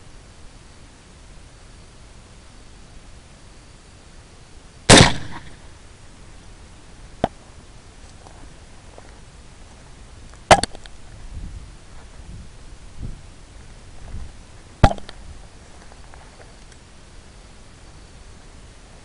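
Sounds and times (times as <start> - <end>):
rifle shots: 4.9 - 5.6
faint click: 16.5 - 16.9.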